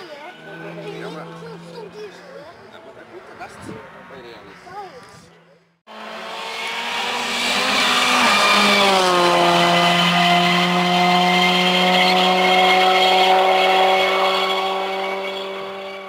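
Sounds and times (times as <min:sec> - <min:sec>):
rally car passing at speed: 0:00.0 - 0:04.7, 0:05.9 - 0:16.0.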